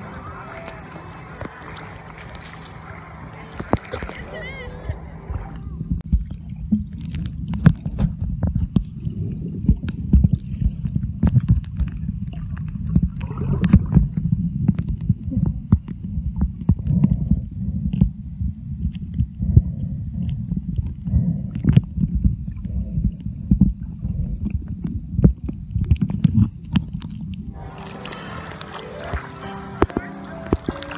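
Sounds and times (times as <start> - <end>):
muffled underwater water rumble: 0.0 - 30.9
underwater clicks and knocks: 5.9 - 18.2, 20.2 - 27.4.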